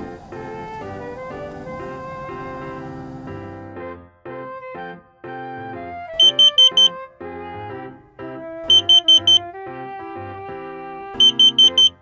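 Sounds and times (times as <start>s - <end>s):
soft keyboard music: 0.0s - 12.0s
carbon monoxide alarm beeping: 6.2s - 7.0s, 8.7s - 9.4s, 11.2s - 12.0s.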